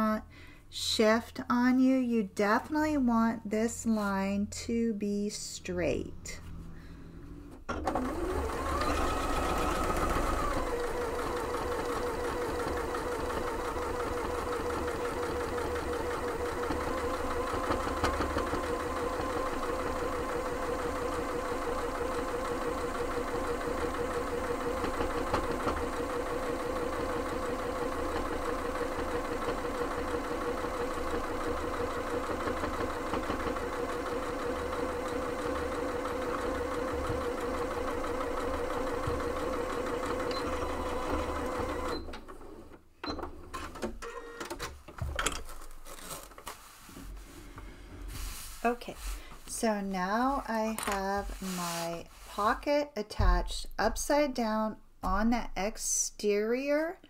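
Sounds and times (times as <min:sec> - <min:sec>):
electric sewing machine stitching: 0:07.5 - 0:44.7.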